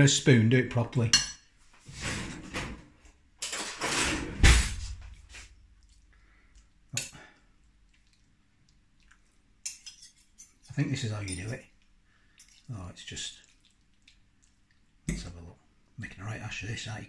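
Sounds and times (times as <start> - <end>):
cutlery clattering: 3.4 - 4.3, 9.7 - 11.6
cutlery clinking in ceramic bowl: 9.7 - 11.6.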